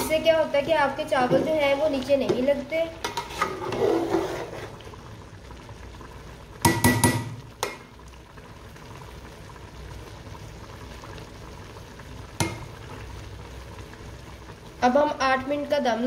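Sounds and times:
faint hiss from pot: 0.0s - 5.4s
metal spoon scraping pot: 3.0s - 4.8s.

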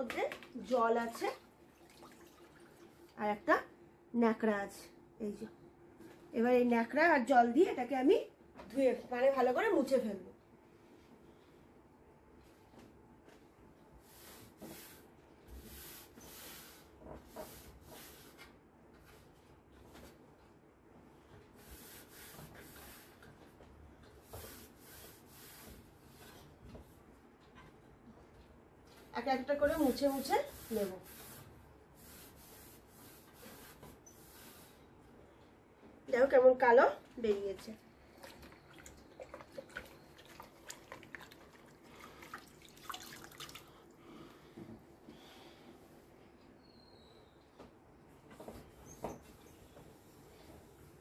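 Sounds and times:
water dripping from rag: 1.7s - 2.9s, 38.2s - 43.9s.

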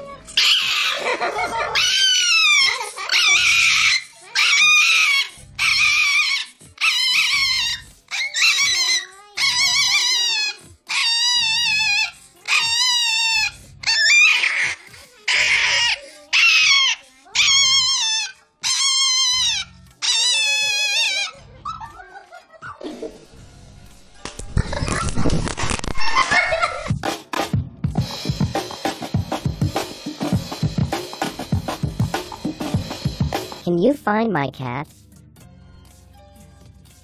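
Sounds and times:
small dog screaming: 0.4s - 1.0s, 1.6s - 21.9s.

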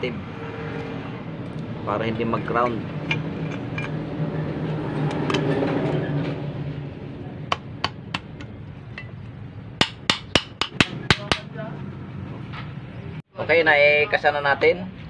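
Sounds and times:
sharp taps on metal housing: 7.5s - 11.5s.

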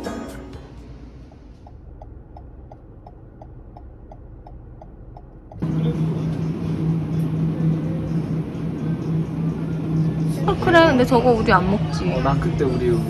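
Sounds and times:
car engine and road rumble: 0.0s - 13.0s
steady hum: 0.0s - 13.0s
turn signal ticking: 0.5s - 5.7s.

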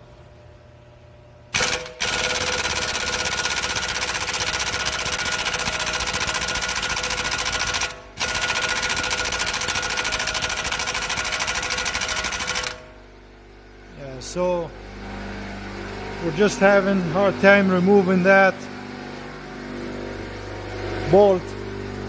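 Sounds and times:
air impact wrench hammering: 1.5s - 13.0s.

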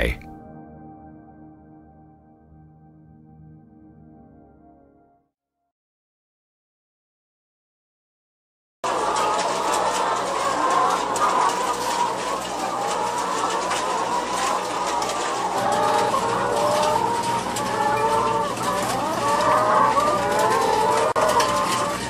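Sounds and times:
hens clucking: 8.9s - 22.0s.

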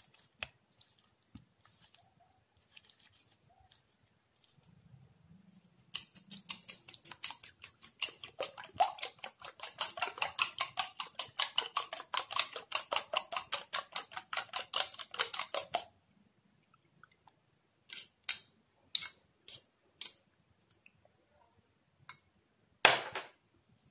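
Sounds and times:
fork beating eggs in bowl: 5.9s - 15.9s.

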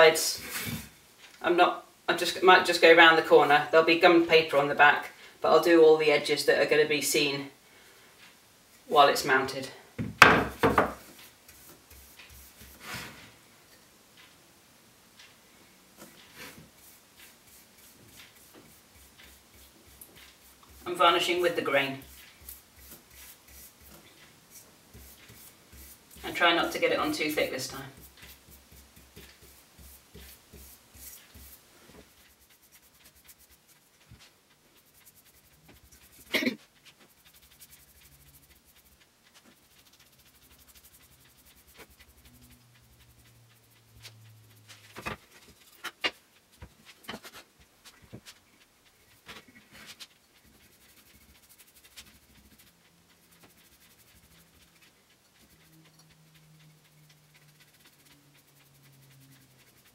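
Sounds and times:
paintbrush scratching on wood: 10.5s - 13.4s, 16.0s - 59.9s.

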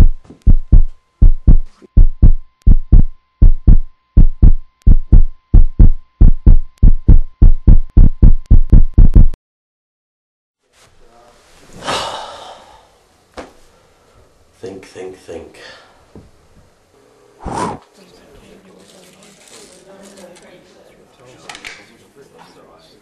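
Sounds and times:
heartbeat thumps: 0.0s - 9.4s
short rushing noise: 17.4s - 17.8s.

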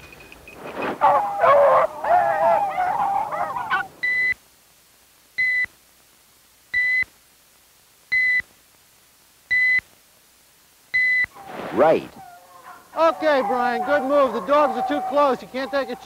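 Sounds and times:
beagles baying: 0.6s - 4.1s, 12.1s - 16.0s.

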